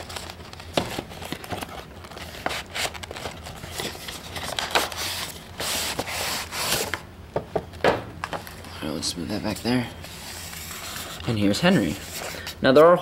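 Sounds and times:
cardboard and plastic scraping: 0.0s - 7.0s.

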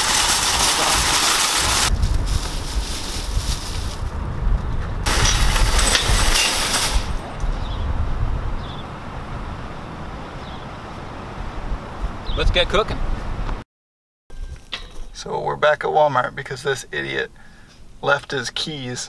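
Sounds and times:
shopping cart rattling on asphalt: 0.0s - 4.1s, 5.1s - 7.4s
low outdoor rumble: 0.0s - 13.6s.

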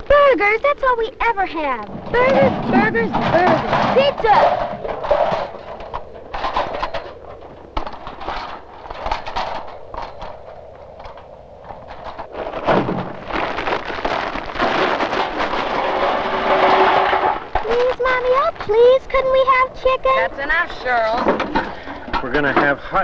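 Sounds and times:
metal grill clicks and clatters: 1.8s - 12.3s.

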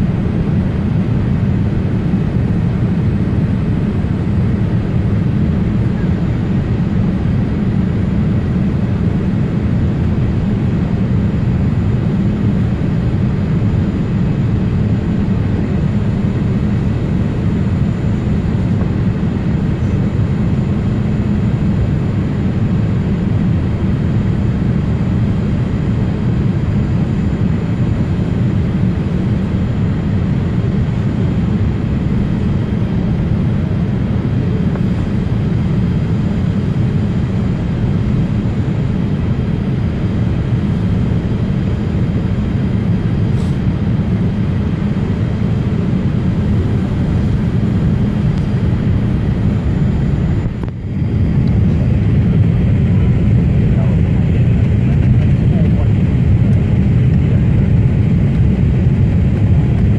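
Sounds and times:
airplane cabin engine rumble: 0.0s - 59.9s.

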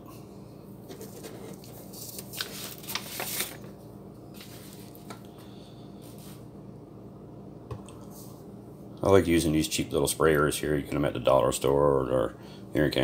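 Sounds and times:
faint steady hum: 0.0s - 13.0s
paper rustling and crinkling: 0.9s - 5.2s.

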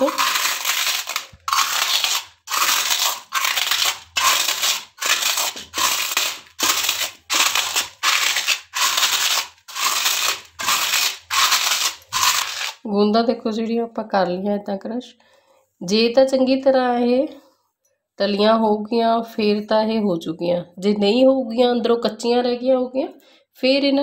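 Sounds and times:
bowl crushing crunchy puffs: 0.0s - 12.9s.

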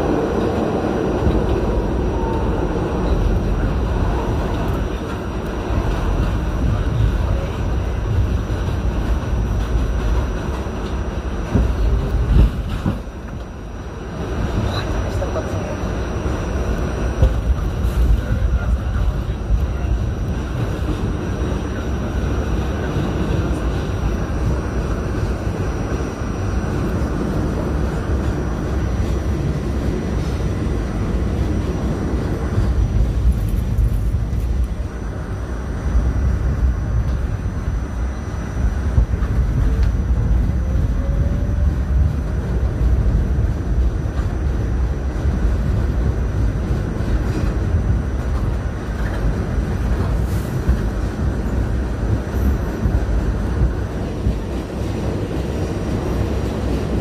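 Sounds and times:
subway wheels rumbling on rails: 0.0s - 57.0s.

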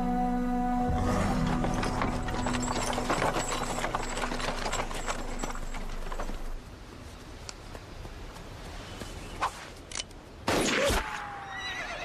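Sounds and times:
horse hooves clip-clopping: 1.1s - 9.4s
buggy rattling: 1.2s - 6.6s.

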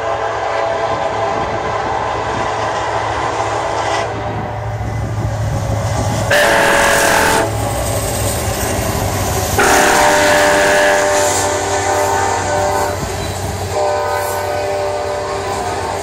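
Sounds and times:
train air horn blasts: 0.0s - 4.4s, 6.3s - 7.6s, 9.6s - 16.0s
diesel locomotive engine rumbling: 0.0s - 16.0s
train rail noise: 0.0s - 16.0s.

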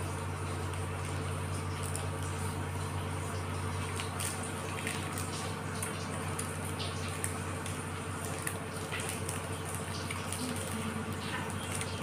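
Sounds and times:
steady low hum: 0.0s - 12.0s
wrappers crinkling and tearing: 3.7s - 12.0s.

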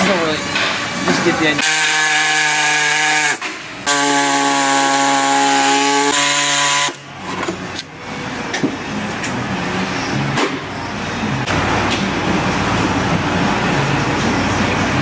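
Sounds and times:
steady background noise: 0.0s - 15.0s
air-powered cutting tool: 1.8s - 7.0s.

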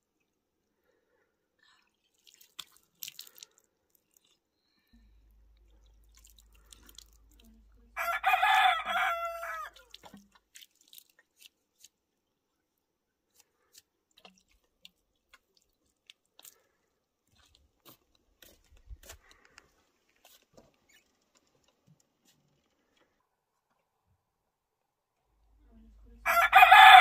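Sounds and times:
water splashing on ground: 2.0s - 4.4s, 5.4s - 7.6s, 8.4s - 12.0s
rooster crowing: 8.0s - 9.8s, 26.2s - 27.0s.

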